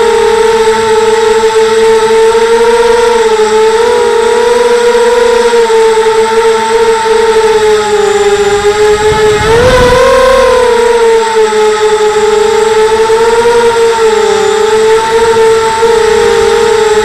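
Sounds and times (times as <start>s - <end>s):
drone motors whining: 0.0s - 17.0s
rush of air: 8.6s - 11.0s.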